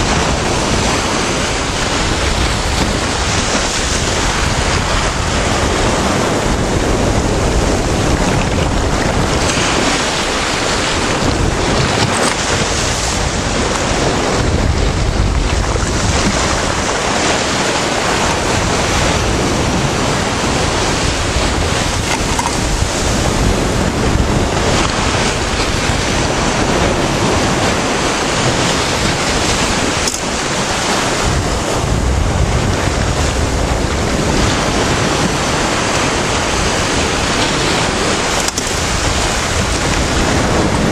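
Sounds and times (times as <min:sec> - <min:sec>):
surf breaking: 0:00.0 - 0:40.9
wind noise on microphone: 0:00.0 - 0:40.9.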